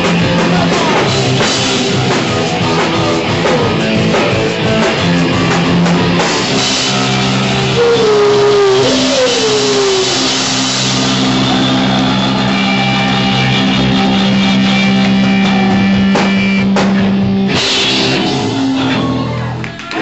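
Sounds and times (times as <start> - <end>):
drum kit: 0.0 - 19.4
bass guitar: 0.0 - 20.0
electric guitar: 0.0 - 20.0.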